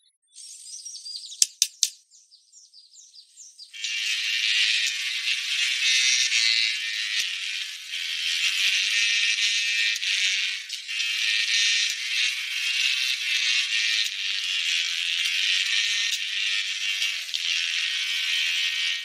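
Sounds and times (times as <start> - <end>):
quick sharp taps: 1.4 - 2.0.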